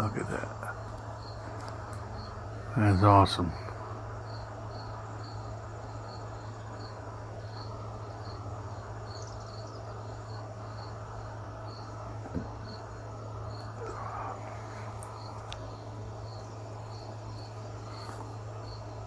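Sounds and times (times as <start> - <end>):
cricket chirping: 0.0 - 19.0
low hum: 0.0 - 19.0
small knock: 12.2 - 12.6.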